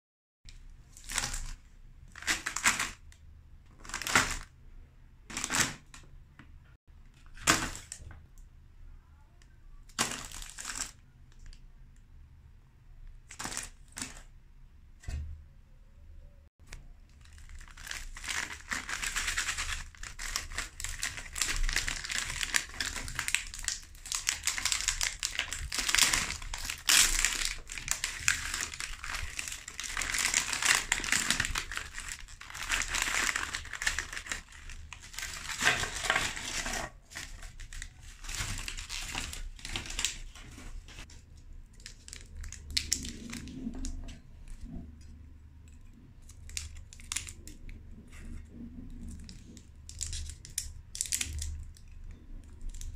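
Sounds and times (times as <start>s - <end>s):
plastic wrapper crinkling: 9.9s - 11.6s, 16.6s - 44.0s, 46.2s - 47.8s, 49.0s - 52.9s.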